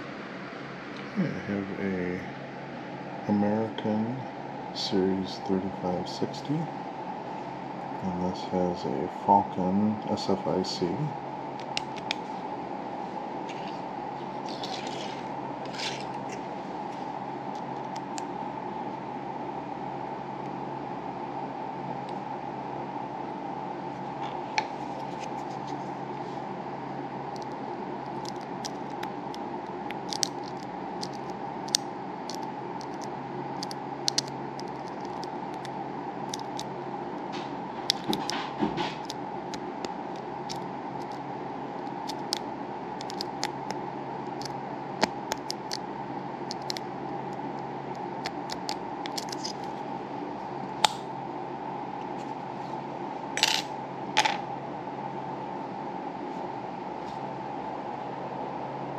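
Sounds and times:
steady hum: 0:00.0 - 0:58.9
lock pick clicking and scratching: 0:48.5 - 0:49.6.

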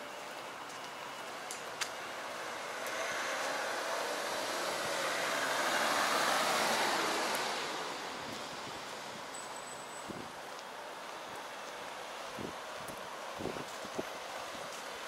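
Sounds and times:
car passing by: 0:02.1 - 0:09.9.

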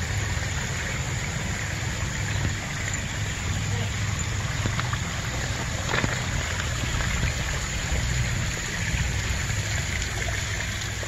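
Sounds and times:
waterfall splashing over rocks: 0:00.0 - 0:11.0.

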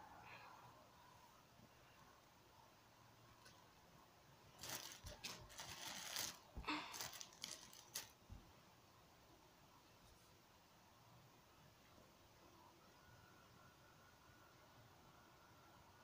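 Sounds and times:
rustling of squishy toys: 0:04.5 - 0:08.2.

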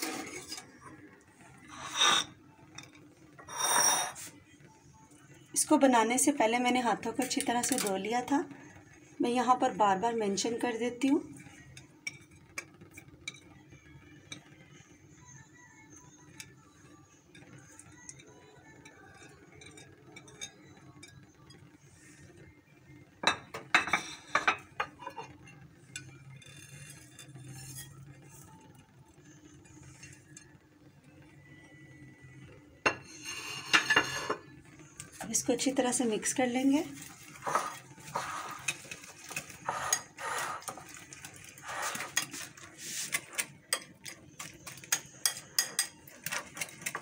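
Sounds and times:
glass dishes clinking: 0:23.2 - 0:26.1, 0:32.9 - 0:34.5
food scraped into glass bowl: 0:37.4 - 0:38.7.

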